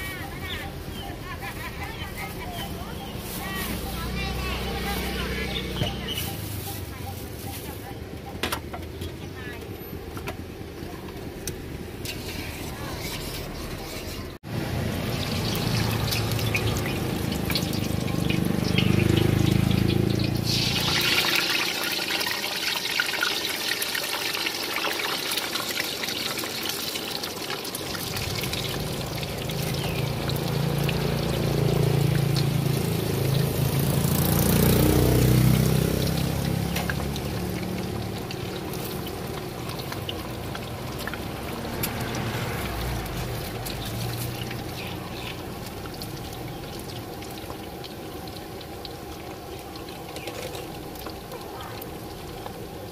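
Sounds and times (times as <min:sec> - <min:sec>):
meatballs sizzling in hot oil: 0:14.4 - 0:52.9.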